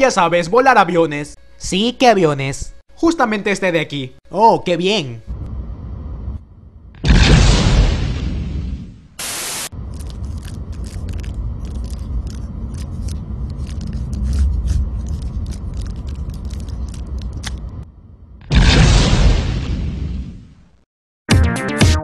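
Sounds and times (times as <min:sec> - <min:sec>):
irregular crackles: 0:09.2 - 0:17.8.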